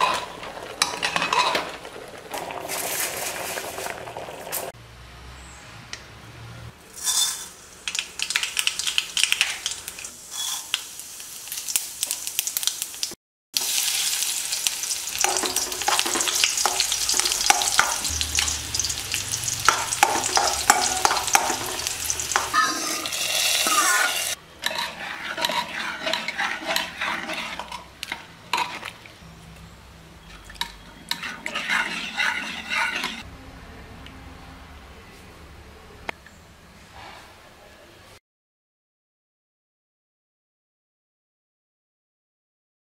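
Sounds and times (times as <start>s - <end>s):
steel spoon scraping pan: 0.0s - 2.0s, 7.0s - 7.6s, 10.3s - 10.7s, 15.1s - 29.0s, 30.3s - 33.3s
dense sizzle of frying: 0.0s - 4.8s, 6.8s - 29.5s
mustard seeds popping in oil: 7.8s - 10.0s.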